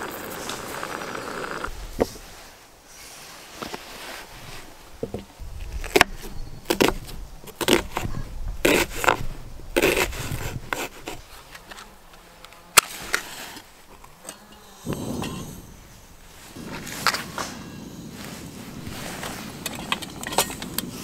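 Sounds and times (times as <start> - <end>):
match strike: 12.5 - 13.7, 16.4 - 21.0.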